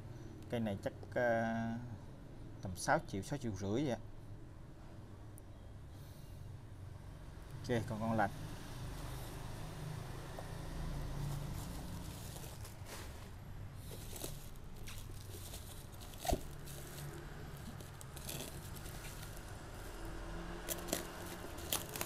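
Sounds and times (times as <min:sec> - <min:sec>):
low steady hum: 0:09.1 - 0:22.0
bubble wrap rustling and crinkling: 0:11.0 - 0:22.0.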